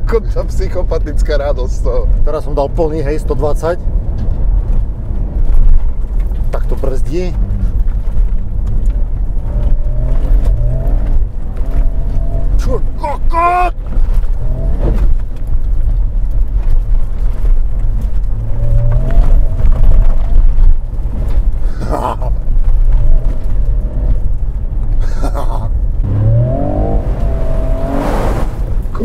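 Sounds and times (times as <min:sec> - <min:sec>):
truck engine rumbling: 0:00.0 - 0:29.0
person crying out: 0:13.0 - 0:13.8, 0:21.8 - 0:22.4
people shouting: 0:13.3 - 0:13.7.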